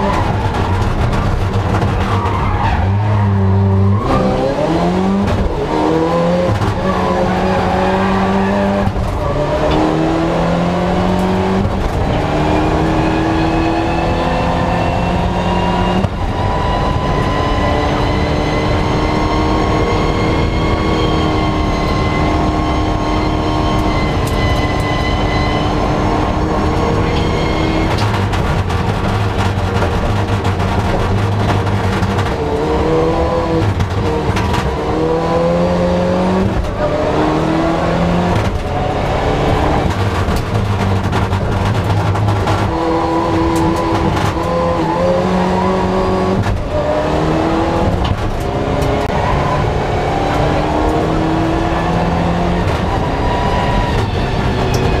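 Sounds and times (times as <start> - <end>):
rally car engine accelerating: 0.0 - 55.0.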